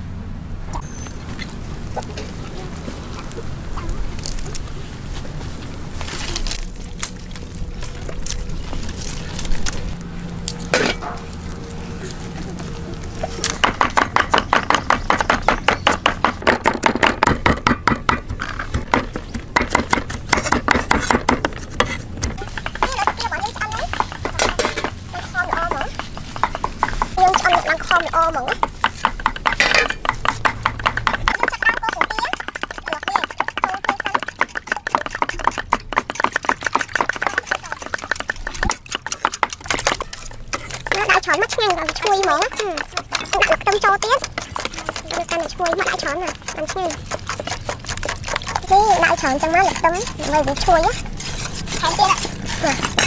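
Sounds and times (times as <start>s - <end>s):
knife chopping on wooden board: 13.4s - 24.9s, 25.6s - 53.0s
whisk beating eggs in metal bowl: 18.3s - 53.0s.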